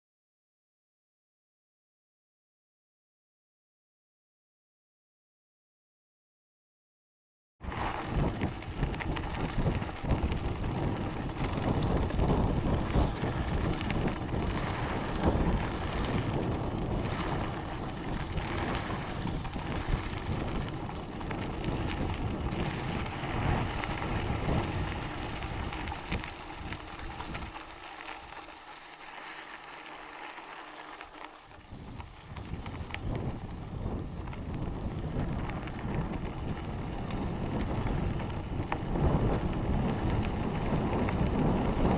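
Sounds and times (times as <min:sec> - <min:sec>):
wind buffeting microphone: 0:07.6 - 0:28.4, 0:31.5 - 0:41.9
bike rattles and knocks: 0:07.6 - 0:41.9
bike tyre noise on dirt: 0:07.6 - 0:41.9.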